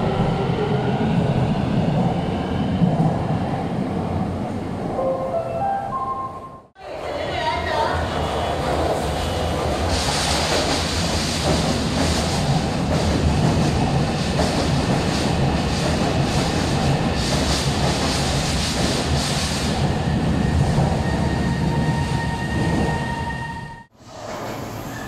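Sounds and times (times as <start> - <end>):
high whine of train: 0.0 - 25.0
train wheels rumbling: 7.6 - 23.2.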